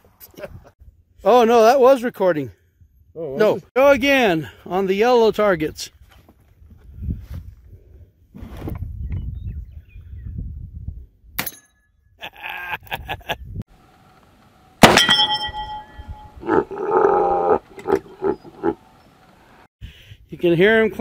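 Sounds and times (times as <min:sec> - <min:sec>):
revolver gunshots: 0:14.8 - 0:15.4
bullets clanking on steel plates: 0:14.8 - 0:16.3.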